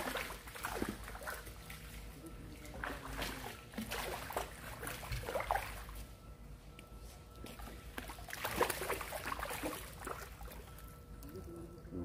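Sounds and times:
fish splashing in water: 0.0s - 6.0s, 7.5s - 10.8s.

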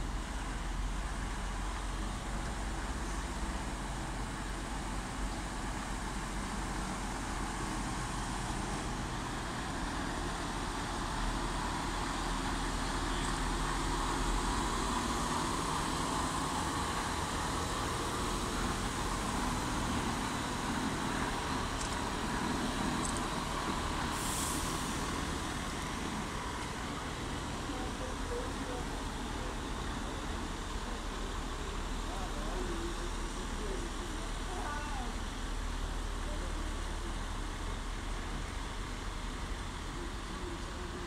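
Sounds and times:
truck diesel engine: 0.0s - 41.0s
brief hiss: 24.1s - 25.1s.

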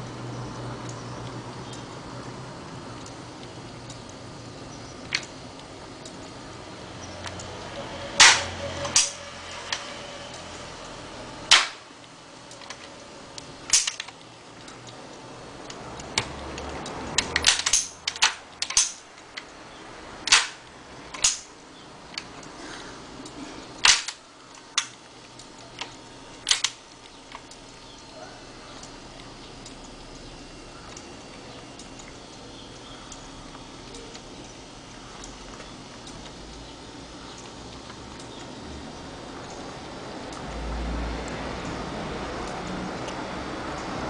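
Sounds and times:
gearbox hum: 0.0s - 44.0s
sharp metallic clacks: 8.2s - 10.0s, 13.7s - 14.2s, 17.2s - 19.0s, 20.3s - 21.5s.

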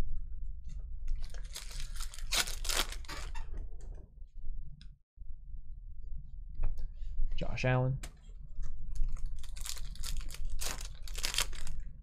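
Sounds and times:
foil wrapper tearing and crinkling: 1.2s - 3.4s, 9.0s - 11.8s.

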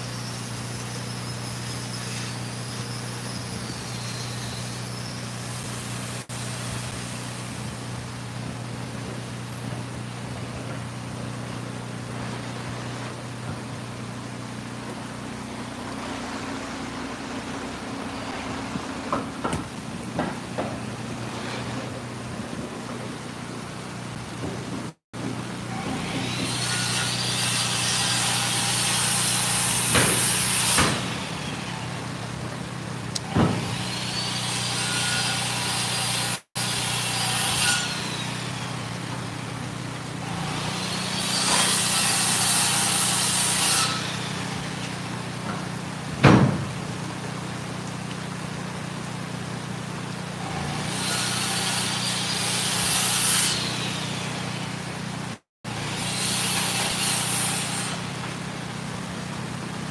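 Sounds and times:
circular saw cutting wood: 0.0s - 7.7s, 25.6s - 32.1s, 33.2s - 39.2s, 40.2s - 45.7s, 50.4s - 54.8s, 55.7s - 58.3s
boards knocking: 19.1s - 20.9s.

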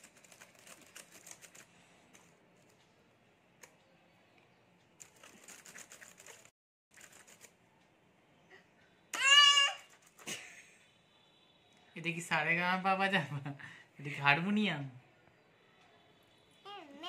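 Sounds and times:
laptop keys clicking: 0.0s - 2.3s.

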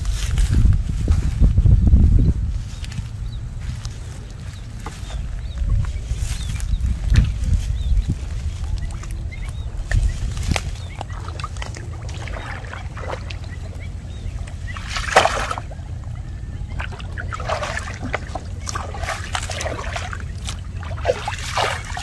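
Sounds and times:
low rumble: 0.0s - 22.0s
water sloshing and splashing: 5.8s - 22.0s.

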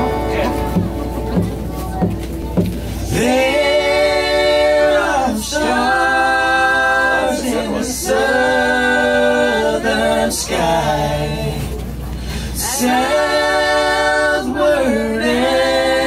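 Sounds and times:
vocal group singing in harmony: 2.8s - 16.0s
singers breathing: 12.0s - 12.6s.

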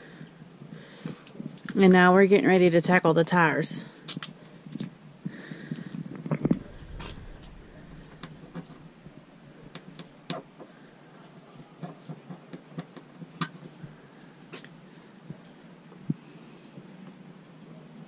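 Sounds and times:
faint low hum: 6.4s - 10.9s.

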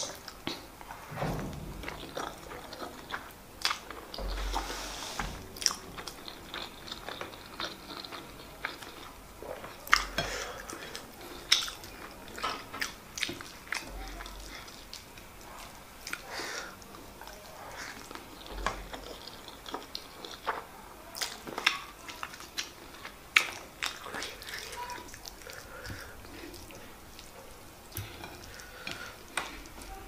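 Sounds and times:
chewing food: 5.4s - 30.0s.

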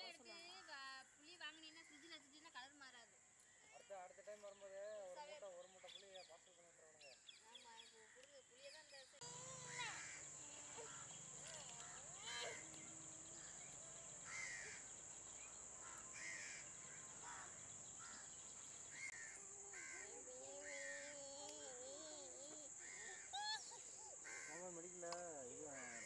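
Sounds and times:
crows cawing: 9.2s - 21.2s, 22.8s - 23.3s, 24.2s - 24.9s, 25.6s - 26.0s.

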